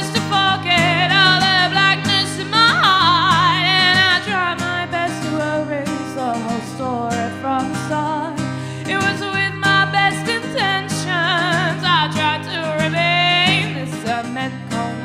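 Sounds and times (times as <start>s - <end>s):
acoustic guitar strumming: 0.0s - 15.0s
woman singing: 0.0s - 15.0s.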